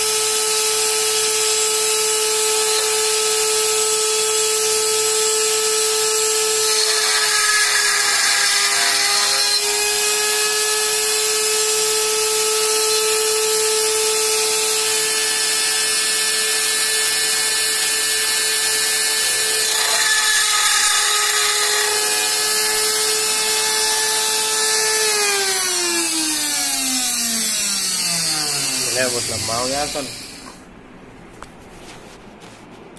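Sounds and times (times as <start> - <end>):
drill bit cutting steel tube: 0.0 - 30.6
drill spindle motor whining: 0.0 - 30.6.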